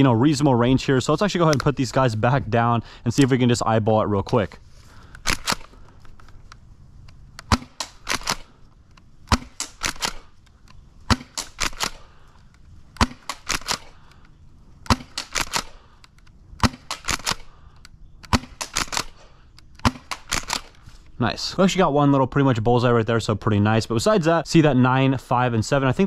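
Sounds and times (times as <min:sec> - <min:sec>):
pump-action clicks: 0:05.0 - 0:20.8
airsoft shotgun shots: 0:07.4 - 0:08.5, 0:09.3 - 0:10.3, 0:11.1 - 0:12.0, 0:14.9 - 0:15.8, 0:16.6 - 0:17.5, 0:18.3 - 0:19.2, 0:19.8 - 0:20.7.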